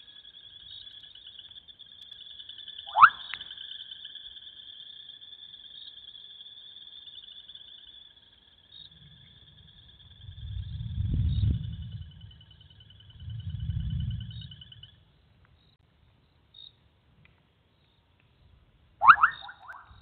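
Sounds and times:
pulsing frog or insect chorus: 0:00.0 - 0:15.8, 0:19.0 - 0:20.0
frog bloop call: 0:02.8 - 0:03.9, 0:19.0 - 0:20.0.

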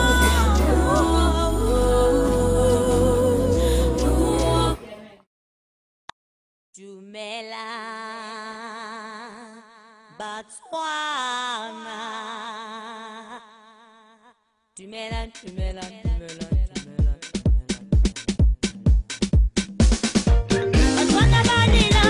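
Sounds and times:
vocal line with vibrato: 0:00.0 - 0:05.2, 0:20.6 - 0:22.0.

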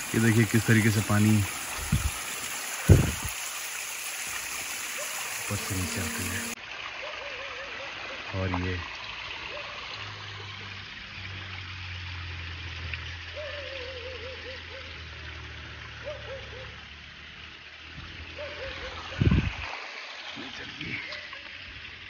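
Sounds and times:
stream rushing: 0:00.0 - 0:06.6.

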